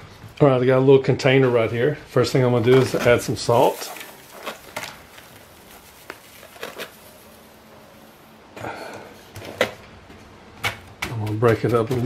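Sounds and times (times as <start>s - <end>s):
plastic container scuffing: 2.6s - 7.7s
salt pouring into plastic container: 3.1s - 8.3s.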